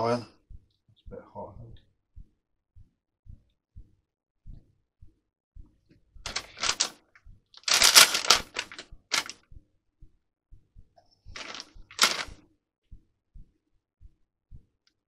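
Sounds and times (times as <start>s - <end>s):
plastic packet crinkling: 6.3s - 6.9s, 7.6s - 9.3s, 11.4s - 12.4s.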